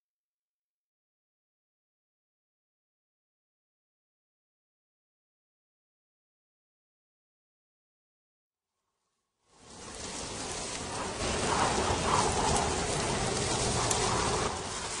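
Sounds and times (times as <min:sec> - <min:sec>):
rain-like hiss: 0:09.5 - 0:15.0.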